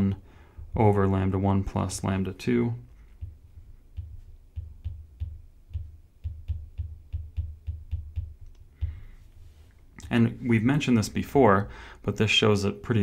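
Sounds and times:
stylus tapping and scratching on tablet: 2.9s - 9.9s.

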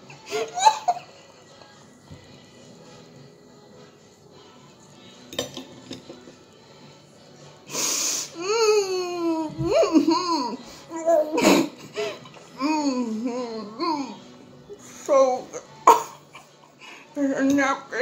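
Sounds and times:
person laughing hard: 0.0s - 1.2s.

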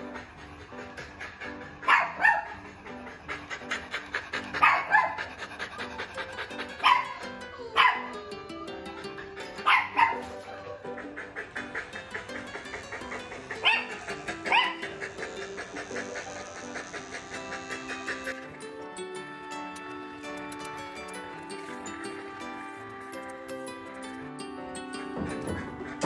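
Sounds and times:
background music: 0.0s - 26.0s
dog barking: 0.8s - 6.0s, 6.6s - 8.2s, 9.4s - 18.4s.

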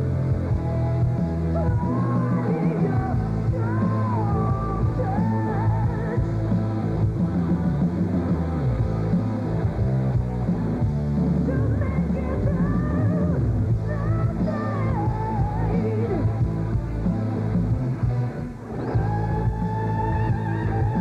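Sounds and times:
live hard rock band: 0.0s - 21.0s
wavering electric guitar lead: 0.0s - 21.0s.

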